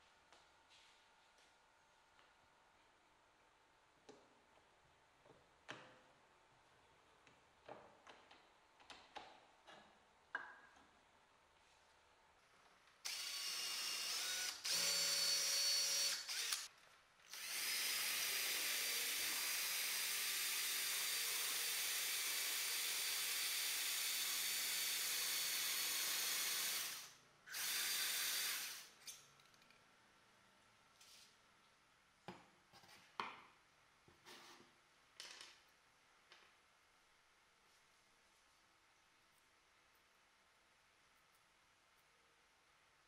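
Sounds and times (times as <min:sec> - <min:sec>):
cordless drill boring wood: 0:13.1 - 0:16.7, 0:17.3 - 0:28.9.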